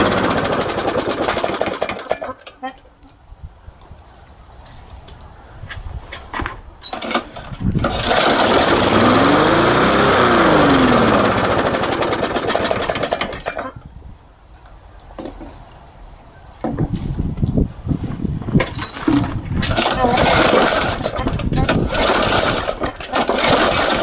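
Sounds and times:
lawn mower engine revving: 0.0 - 2.5, 6.9 - 13.6, 19.0 - 24.0.

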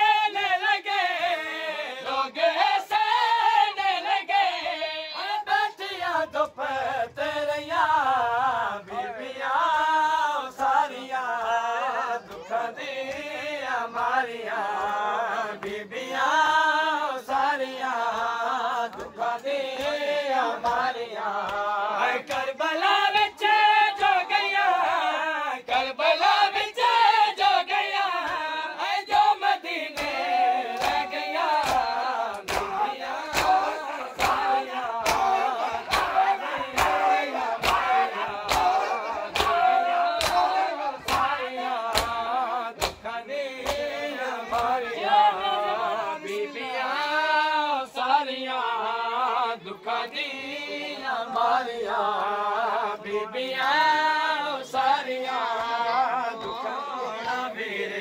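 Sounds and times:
men chanting in unison: 0.0 - 58.0
hands slapping chests: 29.9 - 44.8.

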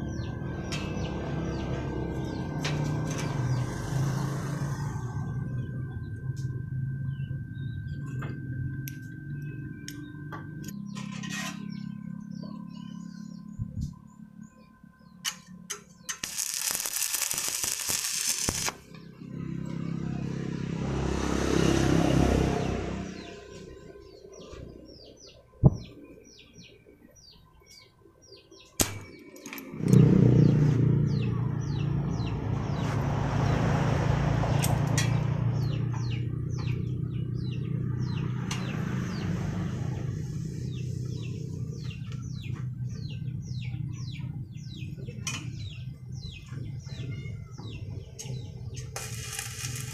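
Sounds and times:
small birds chirping: 7.0 - 20.2, 22.6 - 33.0, 34.6 - 49.9
bursts of hiss: 49.0 - 49.9.

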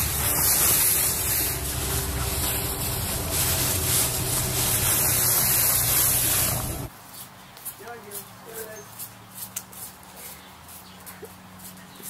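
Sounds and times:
wind buffeting microphone: 0.0 - 6.9
dog running through dry leaves: 0.0 - 12.0.

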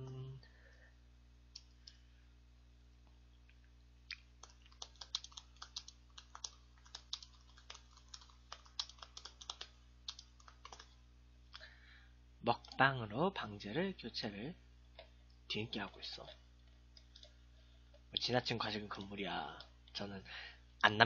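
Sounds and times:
faint keyboard typing: 4.3 - 11.0, 15.7 - 18.2.

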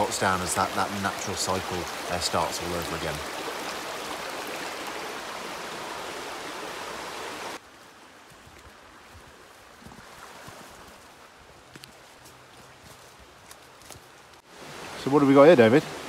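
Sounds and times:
stream rushing: 0.0 - 16.0
footsteps on leafy path: 7.6 - 14.5
rustling undergrowth: 7.6 - 14.5.

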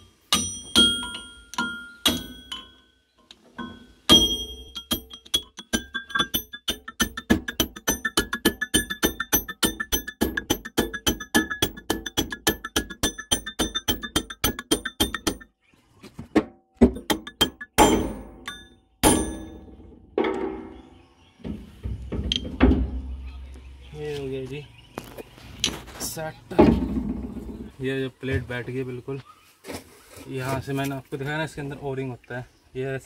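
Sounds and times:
hammer tapping metal plate: 0.3 - 2.8, 3.6 - 15.5, 16.8 - 20.7.

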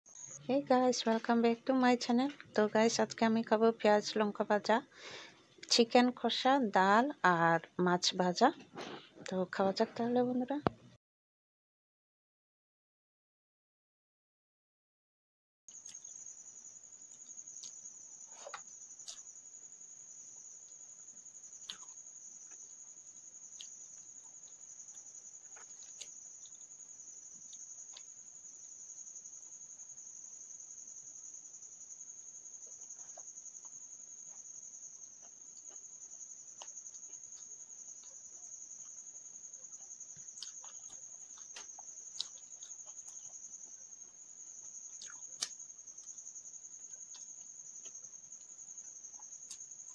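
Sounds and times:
cricket trilling: 0.1 - 10.7, 15.7 - 49.9
eating clicks and smacks: 39.8 - 46.2.

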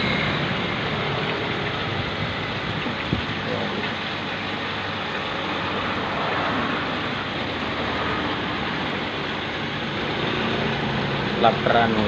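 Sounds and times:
low steady hum: 0.0 - 7.6.

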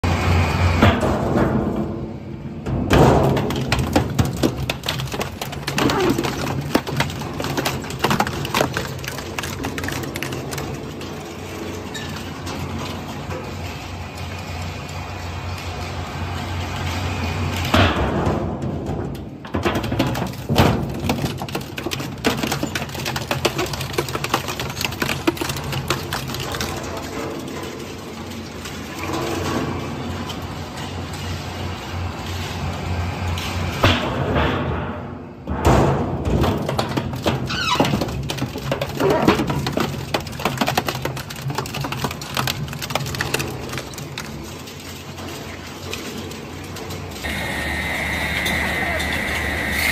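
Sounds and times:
metal cracking and clanking: 0.8 - 49.9
shredder humming: 47.3 - 49.9.

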